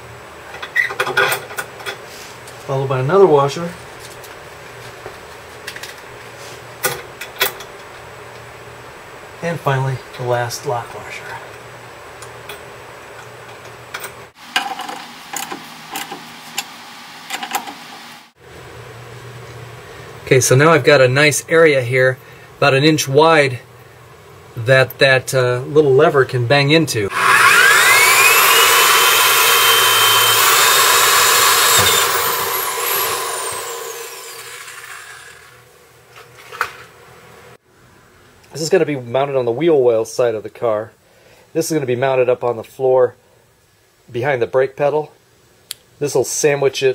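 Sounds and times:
electric drill motor whine: 27.1s - 35.6s.

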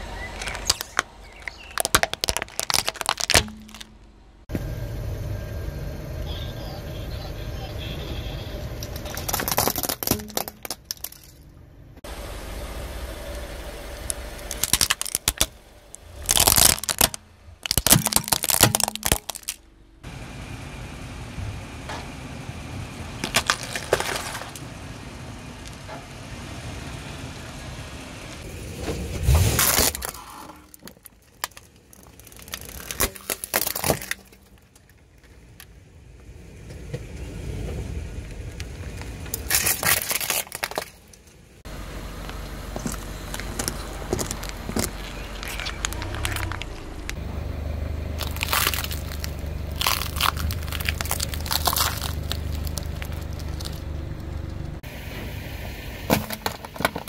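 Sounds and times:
car rumble: 0.0s - 57.0s
tyre crushing brittle objects: 0.3s - 4.0s, 8.9s - 11.4s, 13.9s - 19.6s, 23.2s - 24.6s, 29.5s - 35.3s, 39.2s - 41.3s, 42.2s - 47.2s, 48.2s - 54.4s.

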